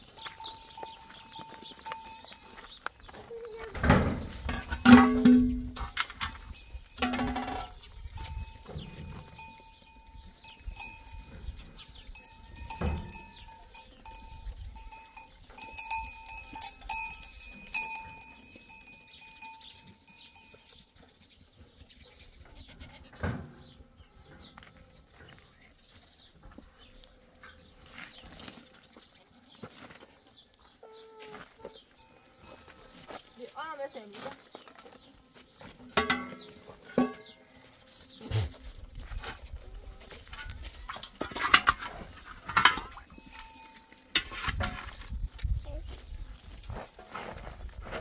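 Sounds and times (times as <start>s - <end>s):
metal livestock bell clanking: 0.0s - 2.8s, 4.0s - 20.9s, 36.0s - 37.4s, 40.3s - 45.1s.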